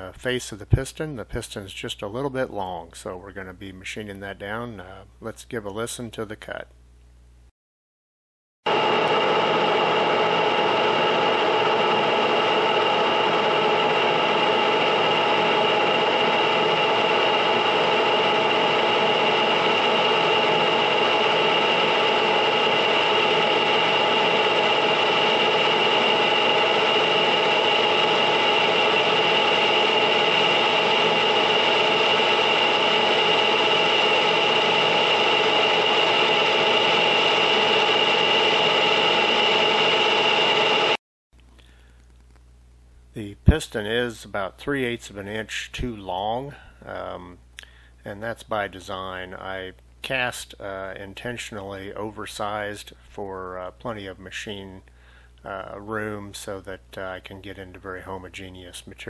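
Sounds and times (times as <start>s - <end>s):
high ringing tone: 8.7s - 41.0s
lathe cutting metal: 8.7s - 41.0s.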